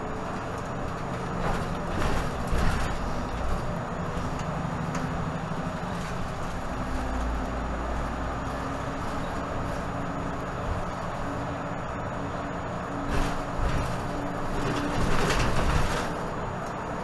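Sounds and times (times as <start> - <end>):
bus engine rumble: 0.0 - 17.0
road noise: 0.0 - 17.0.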